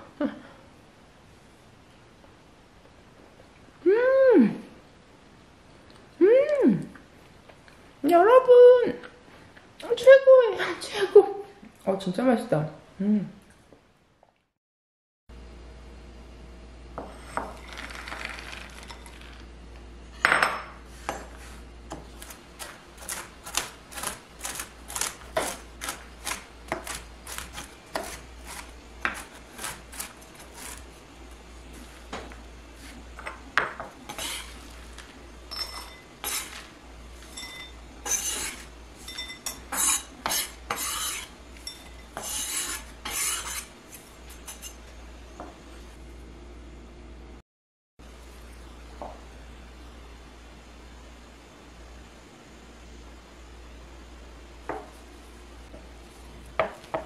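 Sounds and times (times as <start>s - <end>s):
knife chopping on cutting board: 21.9s - 30.8s.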